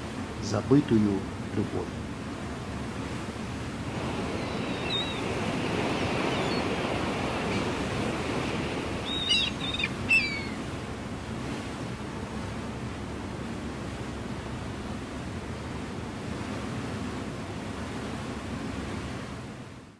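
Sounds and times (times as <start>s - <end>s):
water splashing in boat wake: 0.0s - 19.9s
short high bird calls: 4.2s - 10.8s.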